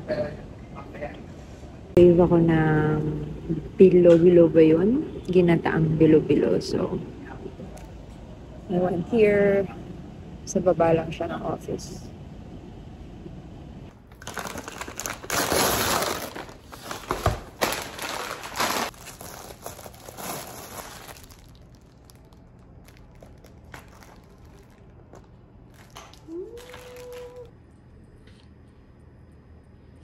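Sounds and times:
plastic cling wrap crinkling: 14.1 - 27.5.

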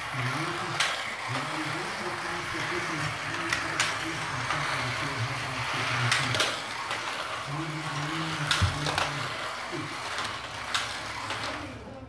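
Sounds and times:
slot car motor whining: 0.0 - 12.0.

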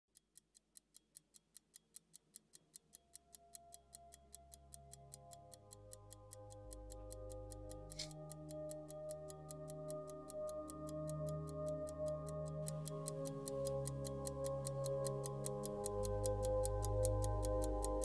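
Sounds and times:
pocket watch ticking: 0.1 - 18.0
watch mechanism click: 0.9 - 9.7
music with long held notes: 6.6 - 18.0.

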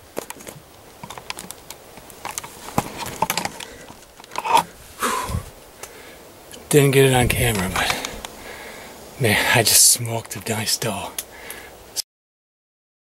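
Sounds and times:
gear clicking and scraping: 0.3 - 4.7.

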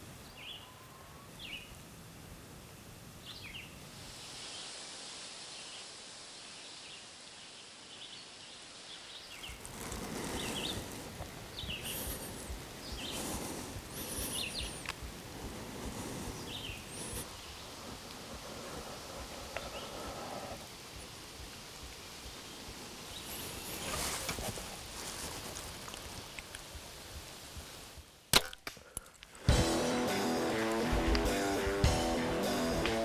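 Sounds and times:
leaves rustling: 0.0 - 33.0
small birds chirping: 0.1 - 1.8, 2.8 - 4.8, 5.5 - 26.8.

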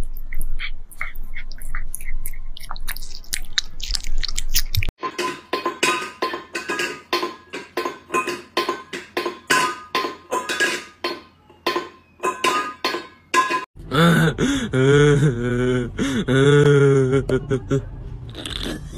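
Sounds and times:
cat chewing and licking: 0.0 - 4.9
metal bowl clinking: 5.0 - 13.7.

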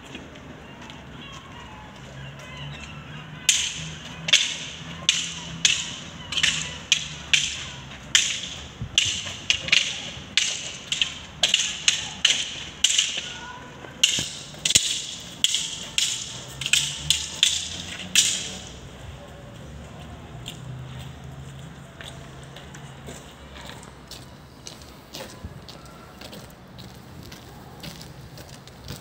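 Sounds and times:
wooden sticks clacking together: 0.1 - 18.9.

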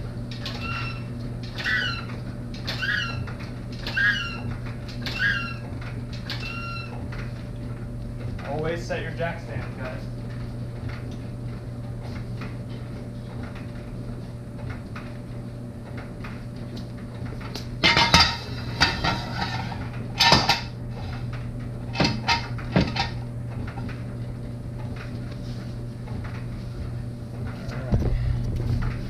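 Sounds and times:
steady low hum: 0.0 - 29.0
metal jack stand clanking: 17.8 - 20.7.

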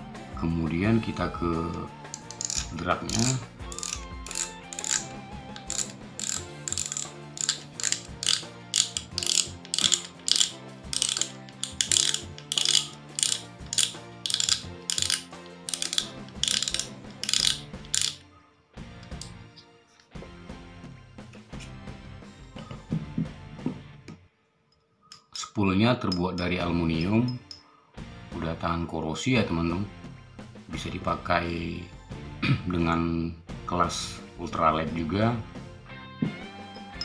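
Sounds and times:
reel drag ratchet clicks: 2.1 - 18.2, 19.0 - 19.3.

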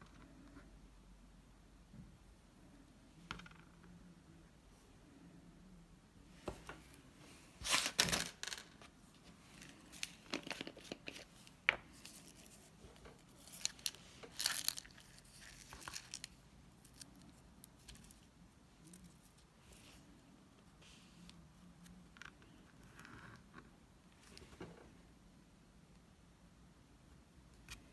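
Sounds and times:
plastic packet crinkling: 13.4 - 17.2.

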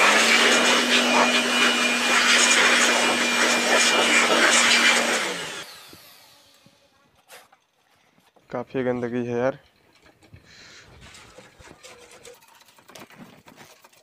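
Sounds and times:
electric air blower running: 0.0 - 6.8.

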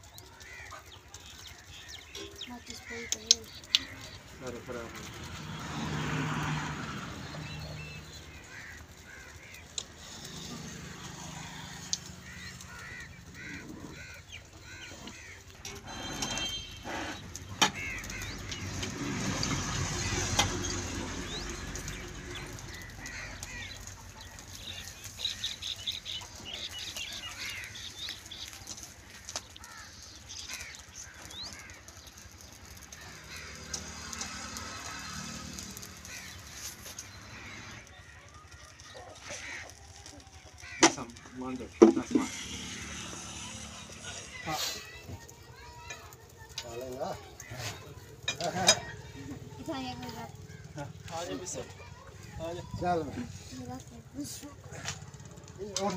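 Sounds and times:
small birds chirping: 0.0 - 55.9.

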